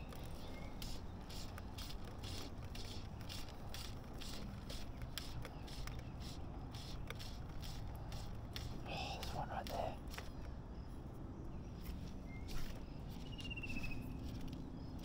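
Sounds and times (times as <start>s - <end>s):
fly line rasping through rod guides: 0.0s - 10.4s.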